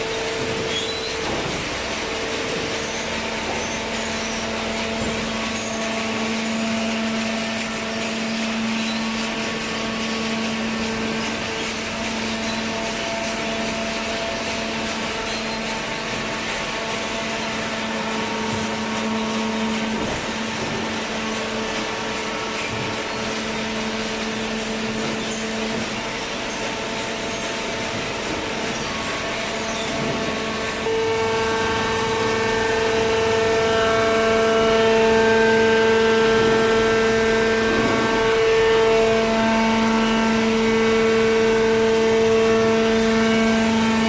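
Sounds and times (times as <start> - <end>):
baler machine humming: 0.0 - 44.0.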